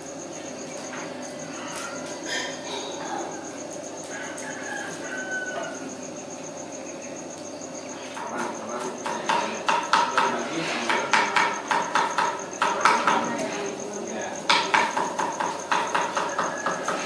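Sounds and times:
crickets trilling: 0.0s - 17.0s
loud sharp knocking: 8.1s - 13.5s, 14.5s - 17.0s.

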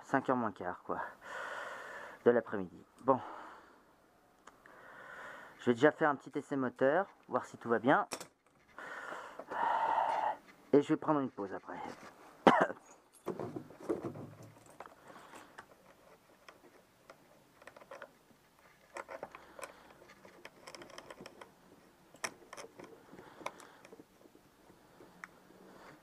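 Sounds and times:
clicks of handling small parts: 8.0s - 8.6s, 14.4s - 24.4s.

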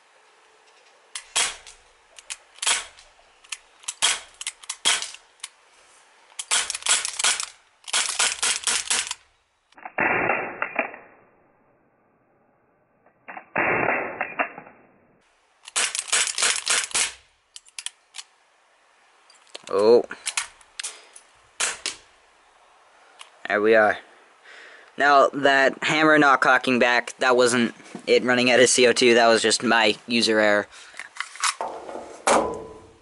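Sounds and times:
pistol slide clacking: 1.1s - 5.6s, 6.4s - 9.3s, 15.6s - 18.3s
air pistol shots cracking: 1.2s - 1.8s, 2.6s - 3.0s, 3.9s - 5.2s, 6.4s - 9.2s, 9.8s - 11.1s, 13.5s - 14.7s, 15.7s - 17.3s, 21.6s - 22.0s.

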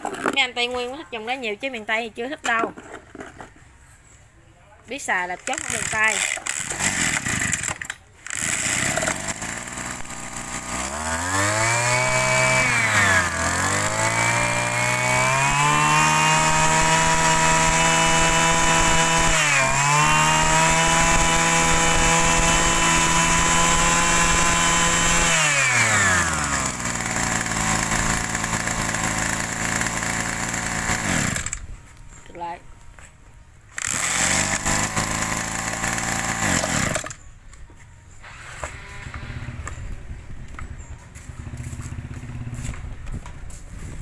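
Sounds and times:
brush cutter engine revving: 5.3s - 31.6s, 33.7s - 37.2s.

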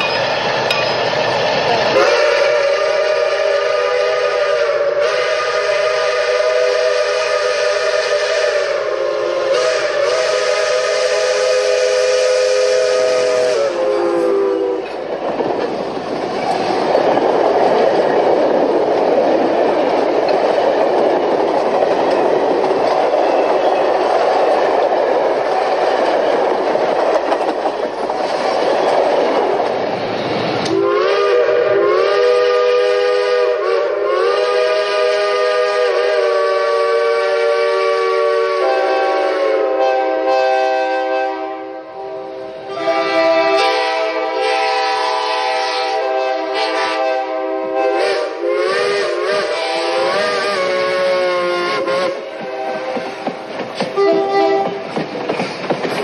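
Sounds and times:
passing train rushing noise: 0.0s - 56.0s
steam locomotive whistle: 1.9s - 15.0s, 30.6s - 53.2s, 53.9s - 54.9s.

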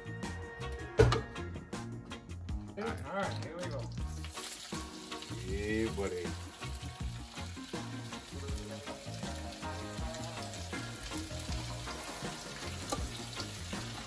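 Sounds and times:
background music bass notes: 0.0s - 14.0s
food sizzling in a hot pan: 3.9s - 14.0s.

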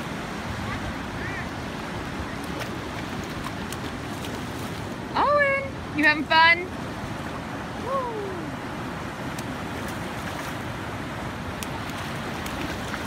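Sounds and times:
surf washing against rocks: 0.0s - 13.0s.

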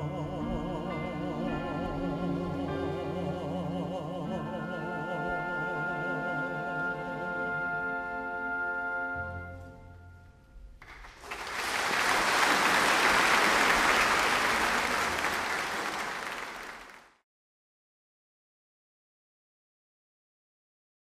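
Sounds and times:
audience applauding: 10.8s - 17.2s.

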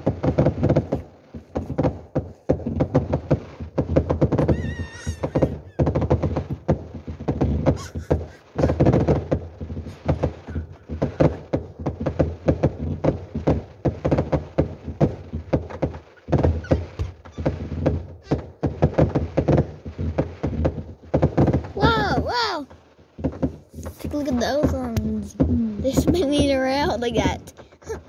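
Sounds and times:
fireworks bangs and crackles: 0.0s - 28.0s.

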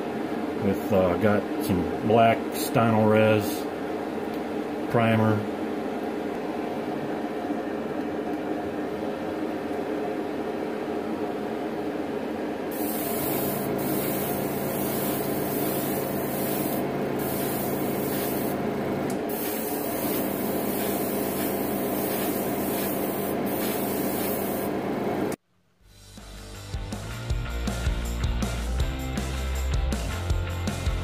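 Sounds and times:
motor hum: 12.6s - 25.4s
airbrush spraying hiss: 12.7s - 18.6s, 19.3s - 24.8s.

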